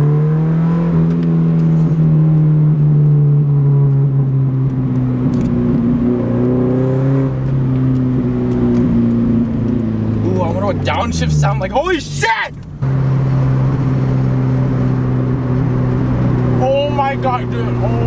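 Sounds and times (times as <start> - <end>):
car engine droning in cabin: 0.0 - 18.0.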